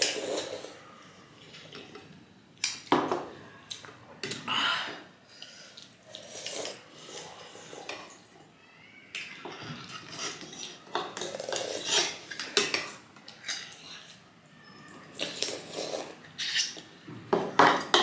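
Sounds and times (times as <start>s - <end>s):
slurping soup: 0.0s - 2.0s, 5.3s - 8.3s, 9.8s - 14.3s, 15.0s - 17.0s
cutlery clinking on ceramic bowls: 9.2s - 14.1s, 17.4s - 18.0s.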